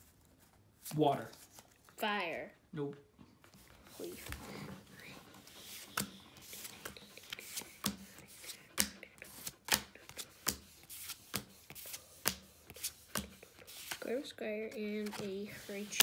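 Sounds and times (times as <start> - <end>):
cards snapping while flipped: 5.9 - 14.0.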